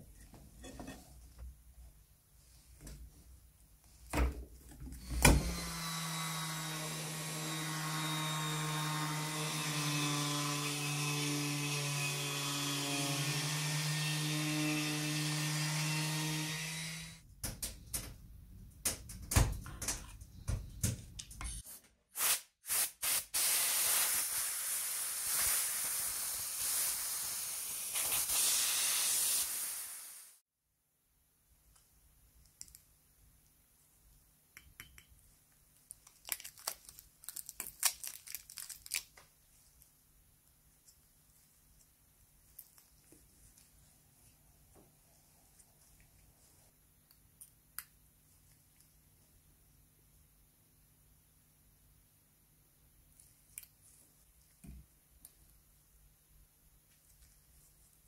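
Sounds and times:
electric power tool motor: 5.0s - 17.2s
air hissing: 22.2s - 30.4s.

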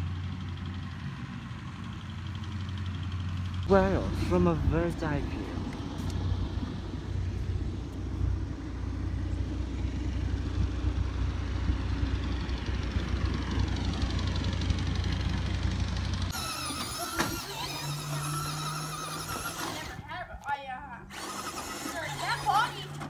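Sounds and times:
low rumble: 3.6s - 16.4s
faint gliding motor whine: 16.3s - 20.0s
toy car electric motor whine: 16.3s - 20.0s, 21.1s - 23.0s.

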